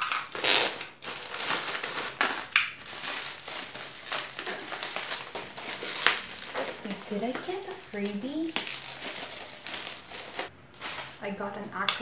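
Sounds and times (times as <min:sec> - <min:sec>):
plastic pouch and bubble wrap crinkling: 0:00.0 - 0:11.4.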